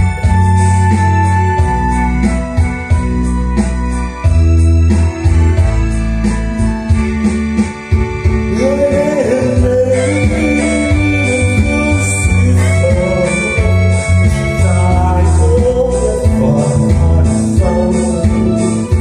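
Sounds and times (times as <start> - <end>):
backing music with keyboard: 0.0 - 19.0
heavy steady bass: 0.0 - 19.0
man singing into a microphone: 8.5 - 19.0.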